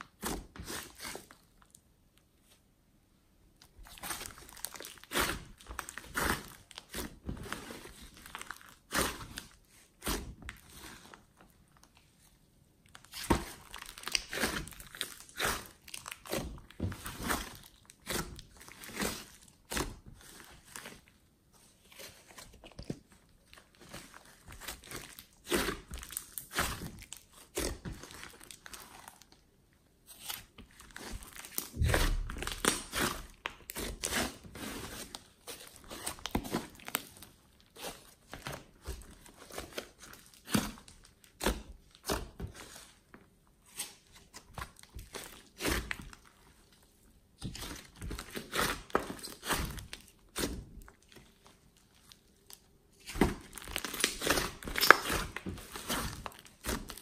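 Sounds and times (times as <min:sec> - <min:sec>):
slime squishing and popping: 0:53.0 - 0:57.0.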